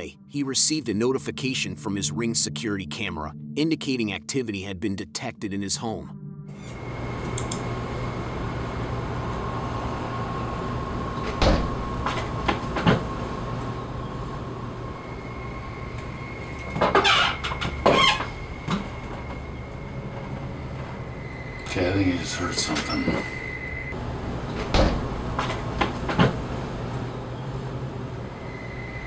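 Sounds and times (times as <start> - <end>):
steady background hum: 6.5 - 29.0.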